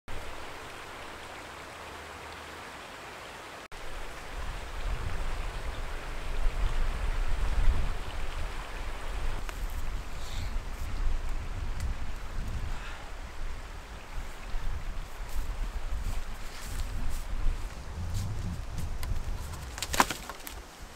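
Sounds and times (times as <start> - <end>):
wind buffeting microphone: 3.9 - 20.0.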